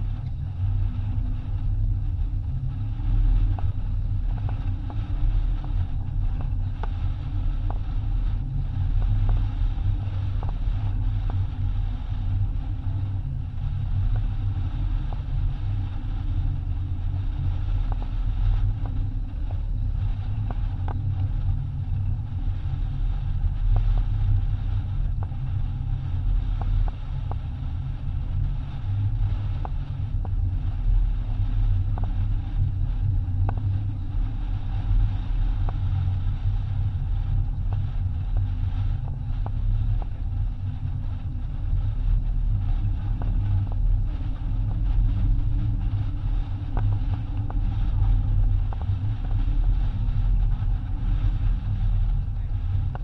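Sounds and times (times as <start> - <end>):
wind buffeting microphone: 0.0 - 53.0.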